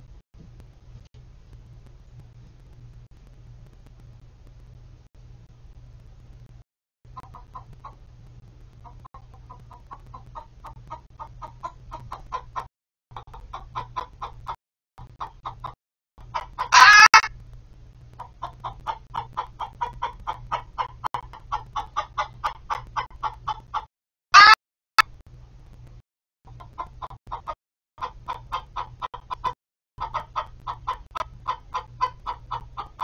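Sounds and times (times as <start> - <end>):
hens clucking: 7.1 - 8.1, 8.7 - 17.3, 18.2 - 24.6, 26.5 - 33.0
hen squawking: 15.2 - 17.3, 24.4 - 24.6.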